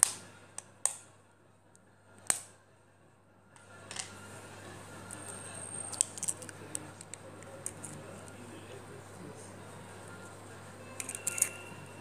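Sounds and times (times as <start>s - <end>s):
eggshell breaking clicks: 11.0s - 11.6s.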